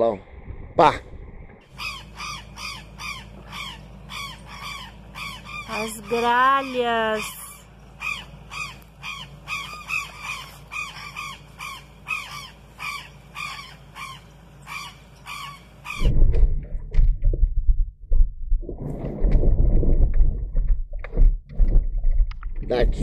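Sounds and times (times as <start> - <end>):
low rumble with irregular knocks: 0.3 - 6.5, 15.9 - 23.0
jays calling harshly: 1.7 - 16.1.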